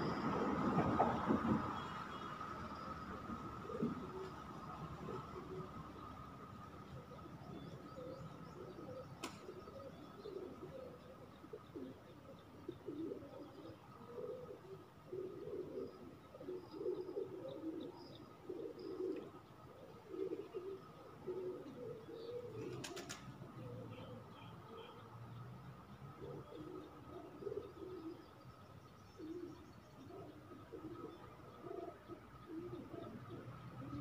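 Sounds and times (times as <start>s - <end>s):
dove cooing: 3.2s - 6.2s, 6.9s - 25.0s, 26.1s - 28.4s, 29.2s - 34.0s.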